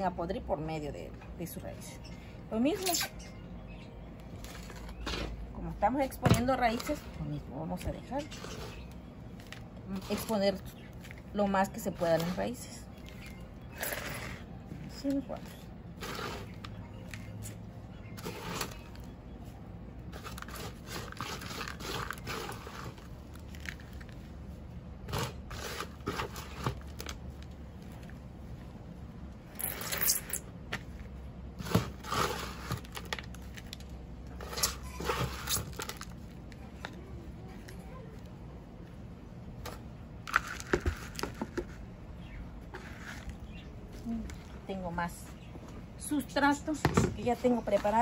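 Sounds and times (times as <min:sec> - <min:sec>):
soil crunching and rustling: 0:06.7 - 0:28.2.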